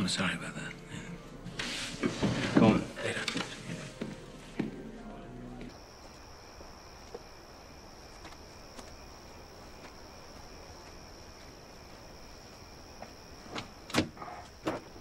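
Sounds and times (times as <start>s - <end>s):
faint footsteps: 1.9s - 15.0s
crickets chirping: 2.1s - 15.0s.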